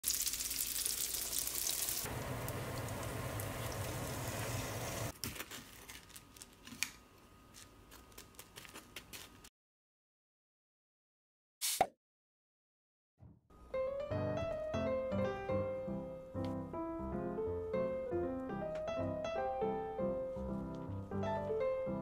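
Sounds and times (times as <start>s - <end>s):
bread frying in hot oil: 0.0s - 5.2s.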